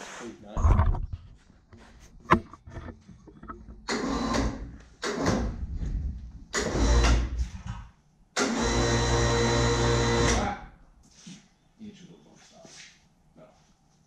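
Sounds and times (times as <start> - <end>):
electric hoist motor running: 6.5 - 7.4, 8.4 - 10.5.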